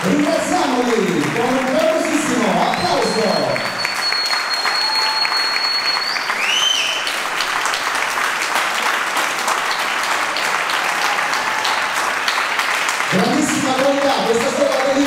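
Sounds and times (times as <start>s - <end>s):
audience applauding: 0.0s - 15.0s
high steady whistle: 2.7s - 7.1s
rising-and-falling whistle: 2.8s - 7.1s.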